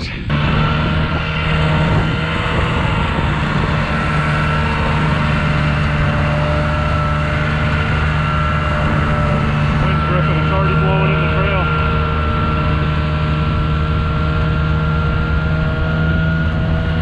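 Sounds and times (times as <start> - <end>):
snowmobile engine humming: 0.0 - 17.0
track rushing over snow: 0.0 - 17.0.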